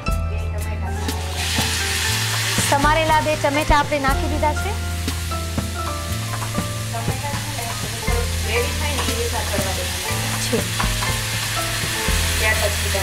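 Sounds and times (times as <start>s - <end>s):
background music with bass: 0.0s - 13.0s
tomatoes sizzling in hot oil: 1.0s - 13.0s.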